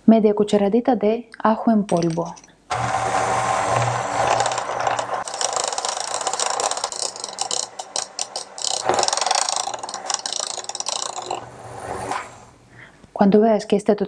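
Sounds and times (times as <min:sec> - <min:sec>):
electric hand mixer running: 0:02.7 - 0:12.5
beaters clicking against bowl: 0:03.5 - 0:11.5.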